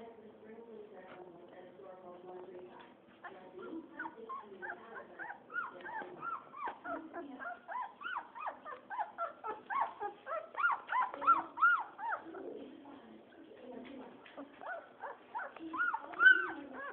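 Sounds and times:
puppies whimpering and squealing: 3.2 - 12.7, 14.3 - 16.9.

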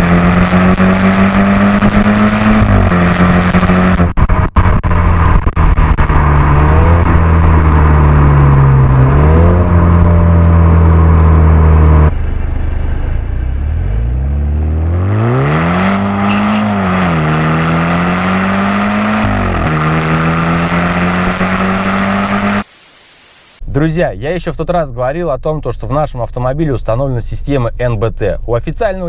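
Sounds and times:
car engine accelerating: 0.0 - 22.7.

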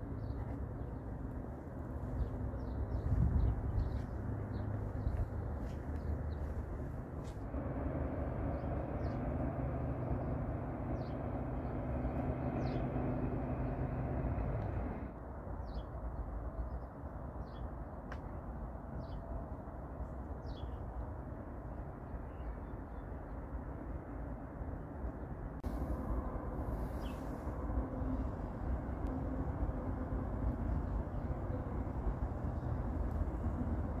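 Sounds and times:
vehicle engine drone: 0.0 - 15.2, 25.6 - 34.0
background hum: 0.0 - 15.8
small birds chirping: 2.0 - 7.4, 8.4 - 15.0.

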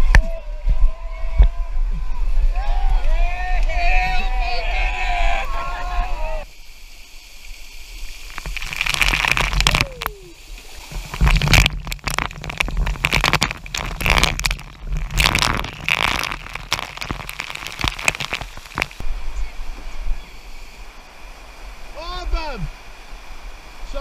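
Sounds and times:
river flowing: 6.5 - 19.8
water spattering and splashing: 6.7 - 19.0.

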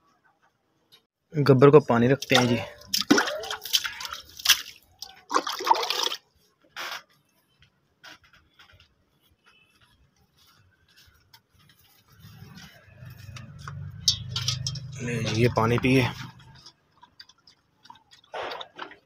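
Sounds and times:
water splashing into a bowl: 2.1 - 6.3
low steady hum: 13.2 - 16.7.

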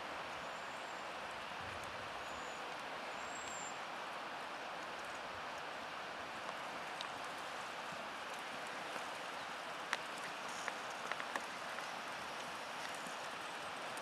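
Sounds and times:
steady outdoor hiss: 0.0 - 14.0
faint hoof clicks and taps: 6.4 - 7.5, 8.2 - 14.0.

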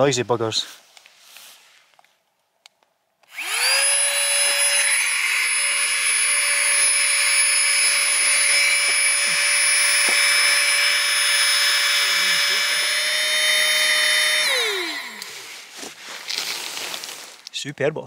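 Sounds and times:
electric air pump whine: 3.3 - 17.2.

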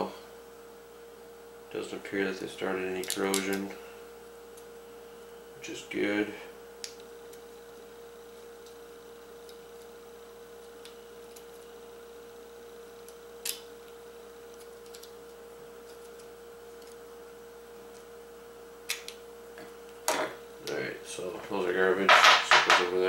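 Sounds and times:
faint electrical hum: 0.0 - 23.0.

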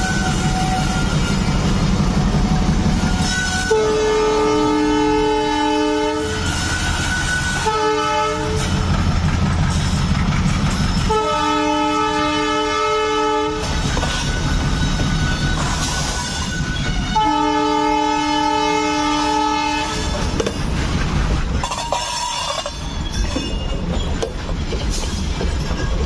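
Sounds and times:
locomotive engine rumble: 0.0 - 26.0
train rolling past: 0.0 - 26.0
locomotive air horn blasts: 3.2 - 8.8, 11.1 - 13.7, 16.4 - 20.2.

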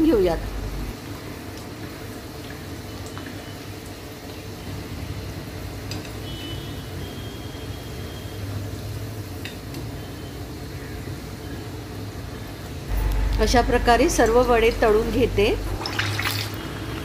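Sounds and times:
oil sizzling and bubbling: 0.0 - 17.0.

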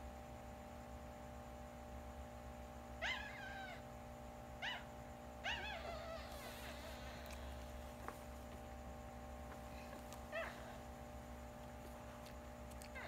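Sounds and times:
puppy crying: 3.0 - 3.8, 4.6 - 7.2, 10.3 - 10.8.

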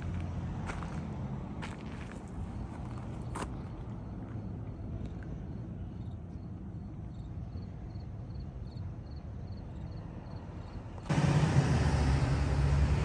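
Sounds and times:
insect chirping: 7.1 - 10.8.

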